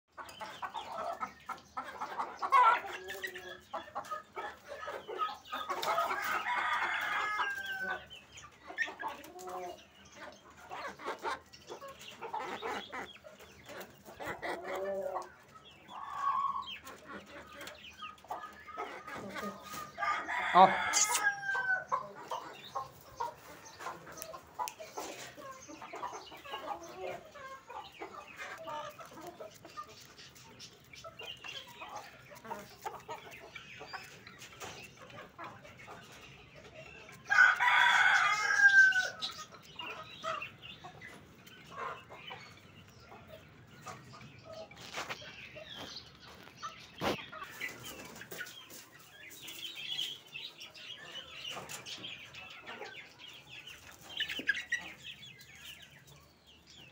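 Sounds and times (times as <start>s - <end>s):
chickens clucking: 0.0s - 56.9s
rooster crowing: 20.0s - 21.9s, 37.3s - 39.2s.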